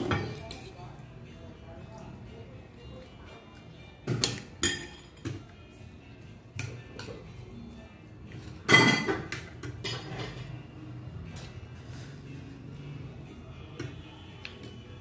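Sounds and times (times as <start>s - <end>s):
cutlery clinking on a plate: 4.1s - 5.4s, 8.5s - 10.6s.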